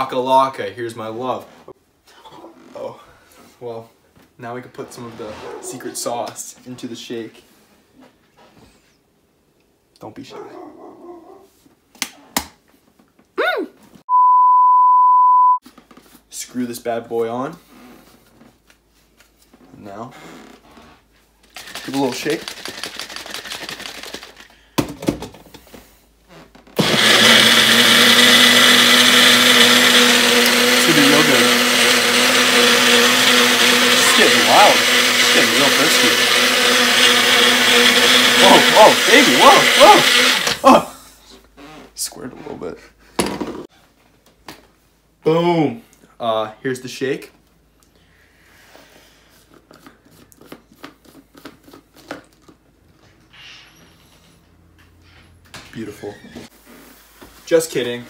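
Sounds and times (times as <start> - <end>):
blender motor whining: 21.6 - 24.1, 26.8 - 40.8.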